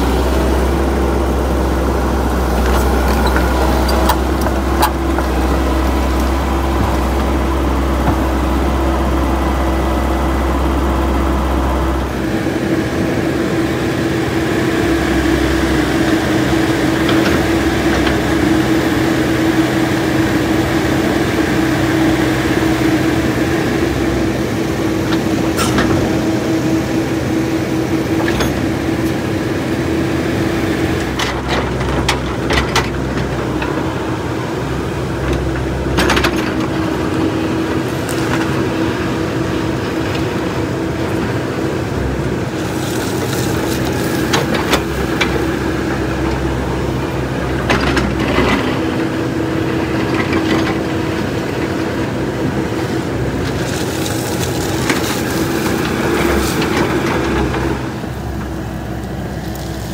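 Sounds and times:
excavator diesel engine droning: 0.0s - 59.9s.

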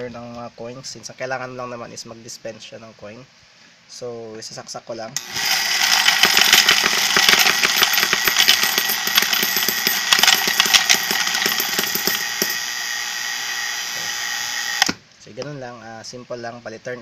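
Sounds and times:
motor whirring: 5.2s - 15.0s
coins clicking and clinking: 5.5s - 12.7s.

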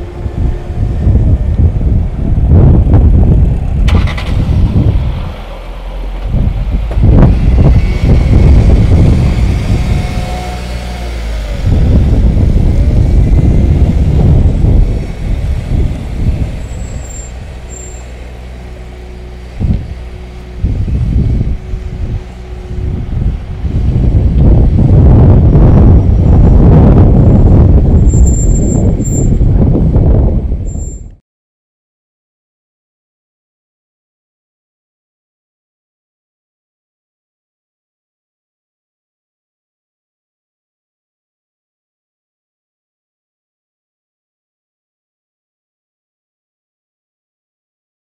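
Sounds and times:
wind on microphone: 0.0s - 5.5s, 6.1s - 31.2s
car engine running: 0.0s - 30.6s.

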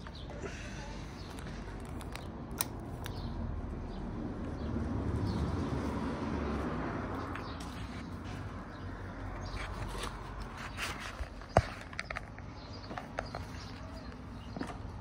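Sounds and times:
sharp clicks: 1.4s - 3.3s.

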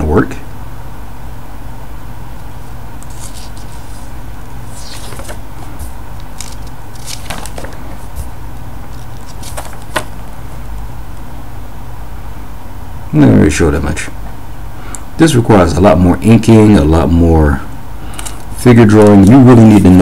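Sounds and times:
steady low hum: 0.0s - 20.0s
paper pages rustling: 3.0s - 10.4s, 18.1s - 20.0s.

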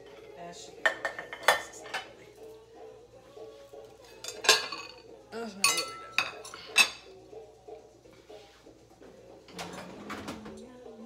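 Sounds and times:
dishes and cutlery clinking: 0.0s - 2.6s, 3.8s - 7.2s, 9.0s - 10.7s.

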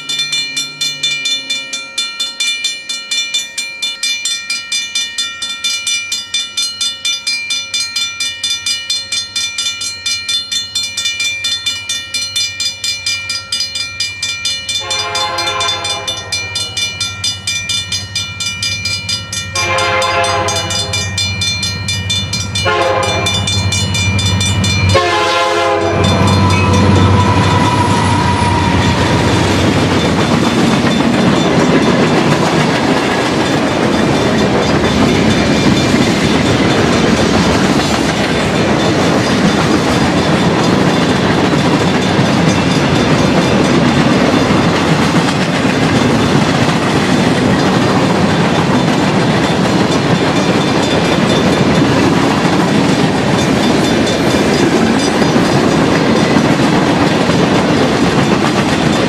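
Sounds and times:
crossing bell ringing: 0.0s - 59.0s
train cars clickety-clack: 0.0s - 59.0s
locomotive horn: 14.8s - 16.6s, 19.6s - 21.0s, 22.6s - 23.5s, 24.9s - 29.6s
locomotive engine rumble: 14.9s - 59.0s.

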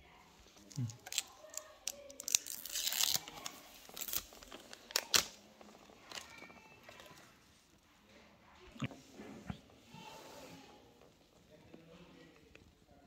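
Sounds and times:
plastic film crinkling: 0.5s - 7.3s.

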